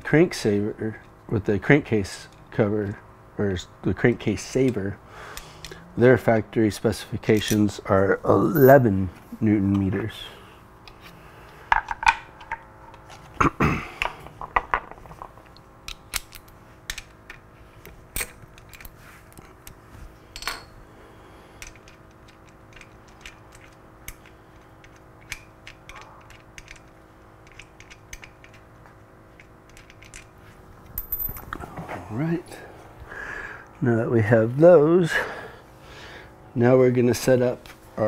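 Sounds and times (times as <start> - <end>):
faint hum: 0.0 - 38.0
metal hardware and tools clinking: 8.5 - 9.1, 20.3 - 20.8, 31.0 - 31.6.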